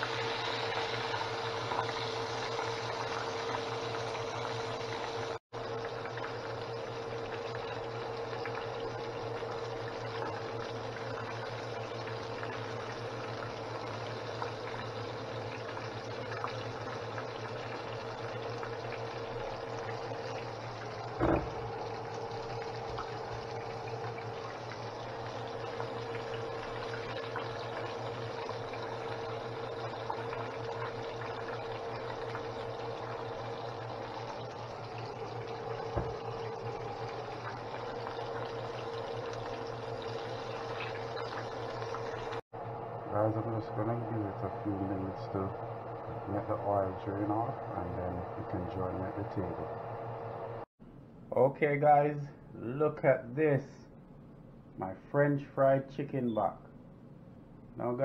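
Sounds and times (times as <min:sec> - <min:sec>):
chicken sizzling in hot oil: 0:00.0 - 0:42.4.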